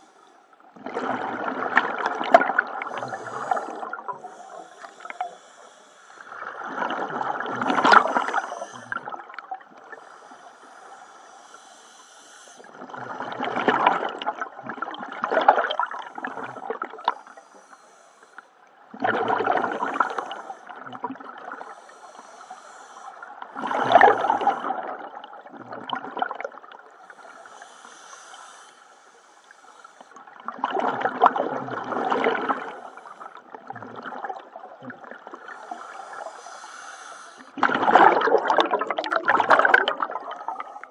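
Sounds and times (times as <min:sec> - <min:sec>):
bubbling exhaled air underwater: 0:00.7 - 0:05.5, 0:06.3 - 0:10.1, 0:12.6 - 0:17.2, 0:18.9 - 0:21.8, 0:23.4 - 0:26.8, 0:30.3 - 0:36.8, 0:37.5 - 0:40.9.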